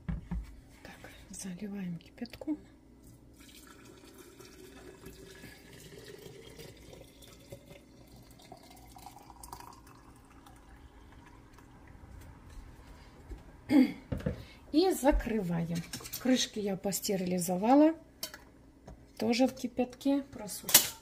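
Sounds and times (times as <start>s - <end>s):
water pouring into glass jar: 3.4s - 11.9s.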